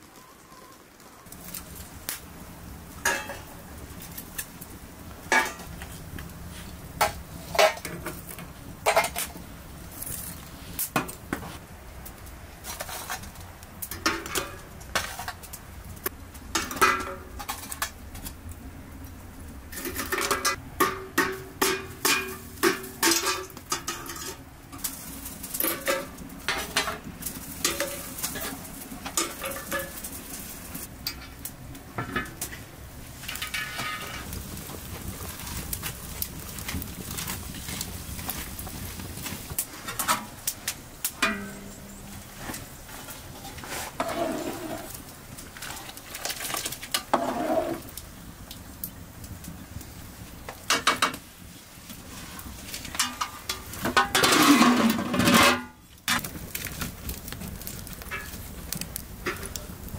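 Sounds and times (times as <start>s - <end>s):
metal scoop scraping: 12.6s - 13.3s, 41.2s - 45.0s, 45.6s - 47.9s, 52.1s - 56.2s.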